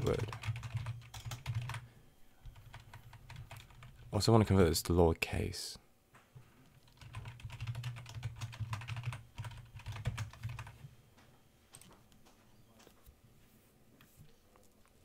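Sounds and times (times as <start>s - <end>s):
computer keyboard typing: 0.0s - 1.8s, 2.4s - 4.1s, 6.7s - 10.8s.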